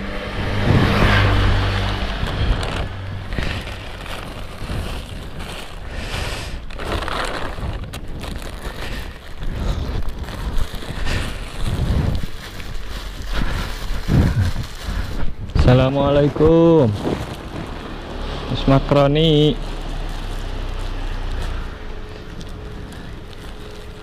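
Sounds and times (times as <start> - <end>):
wind on microphone: 0.0 - 5.8, 6.6 - 18.0
plastic bags rustling: 0.0 - 24.0.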